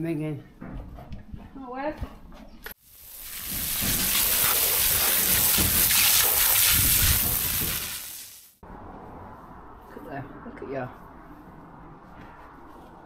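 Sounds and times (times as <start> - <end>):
hose water spraying on boots: 2.8 - 8.6.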